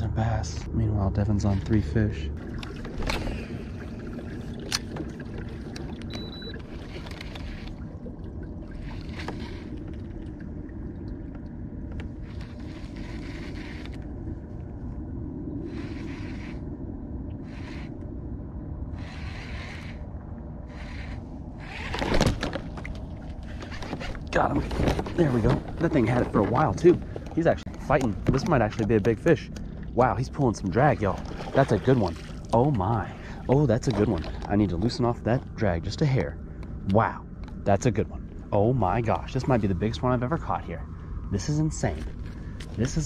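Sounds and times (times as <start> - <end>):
steady low rumble: 0.0 - 43.0
fishing reel whirring: 6.1 - 8.0, 8.7 - 10.0, 12.1 - 14.4, 15.6 - 16.8, 17.4 - 18.1, 18.9 - 22.5.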